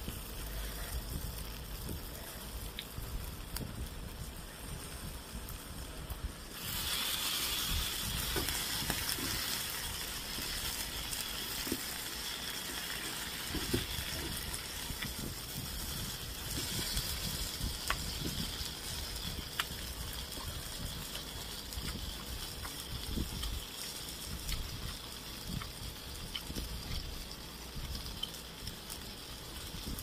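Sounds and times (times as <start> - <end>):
pork sizzling in pan: 0.0 - 30.0
soft eating sounds: 6.6 - 30.0.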